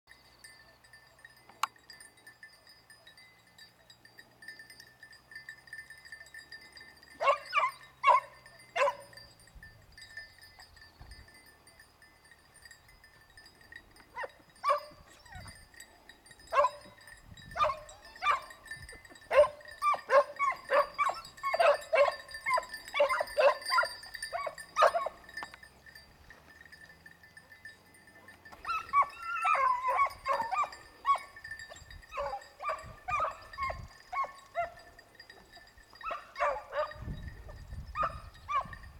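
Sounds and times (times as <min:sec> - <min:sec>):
hounds barking and yelping: 0:07.2 - 0:09.4, 0:14.1 - 0:15.7, 0:16.4 - 0:25.6, 0:28.2 - 0:38.9.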